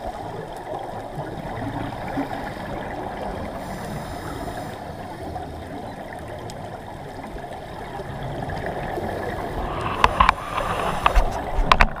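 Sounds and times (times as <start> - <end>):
sharp clicks and knocks: 9.8 - 12.0.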